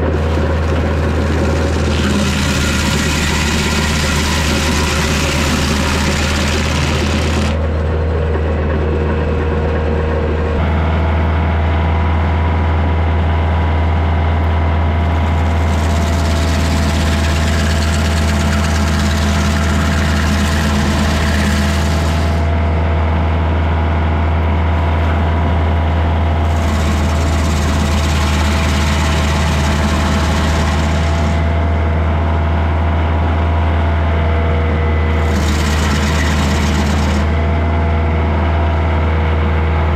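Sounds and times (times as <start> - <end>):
cutter wheel spinning free: 0.0 - 7.6, 15.2 - 22.6, 26.5 - 31.6, 35.1 - 37.6
stump grinder chewing wood: 0.0 - 7.9, 15.0 - 22.6, 26.4 - 31.8, 35.0 - 38.1
tractor diesel engine running: 0.0 - 39.9.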